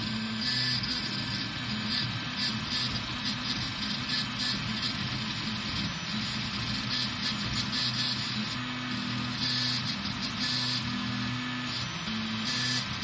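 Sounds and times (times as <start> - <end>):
stepper motors humming: 0.0 - 13.0.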